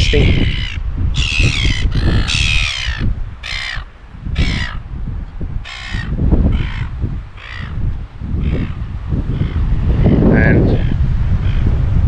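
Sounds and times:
seagulls squawking: 0.0s - 4.8s, 5.6s - 7.8s
wind rumbling on microphone: 0.0s - 12.0s.

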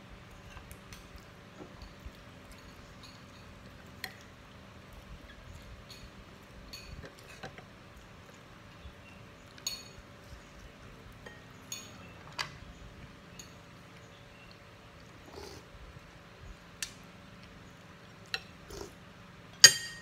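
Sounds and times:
spoons clinking on ceramic bowls: 6.7s - 7.5s, 19.6s - 20.0s.

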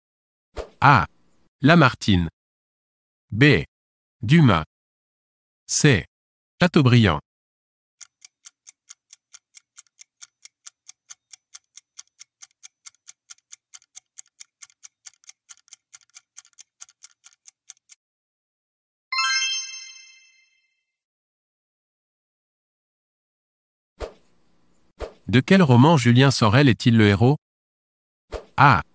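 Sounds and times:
bright chime: 19.1s - 20.8s.

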